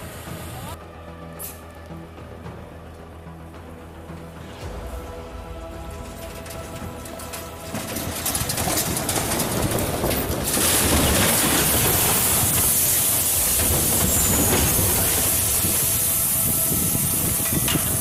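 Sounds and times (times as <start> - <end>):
crashing metal: 4.6 - 18.0.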